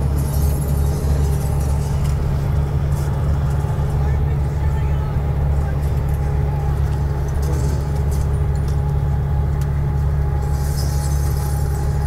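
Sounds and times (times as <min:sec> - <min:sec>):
truck engine drone: 0:00.0 - 0:12.0.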